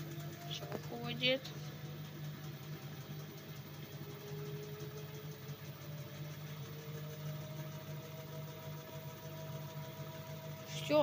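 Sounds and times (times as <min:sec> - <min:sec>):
washing machine spinning: 0:00.0 - 0:11.0
rising whine: 0:03.8 - 0:11.0.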